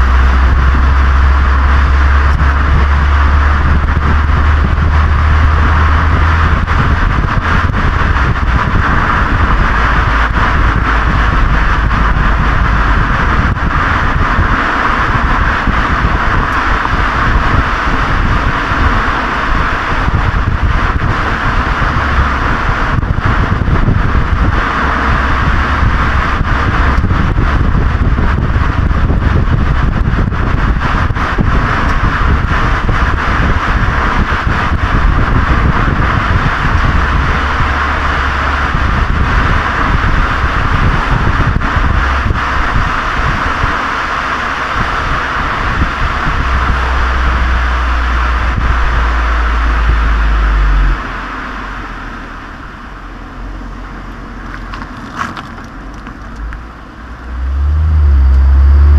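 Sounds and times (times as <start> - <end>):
car exhaust rumble: 0.0 - 58.9
tyre noise on road: 0.0 - 58.9
wind noise on microphone: 0.0 - 58.9.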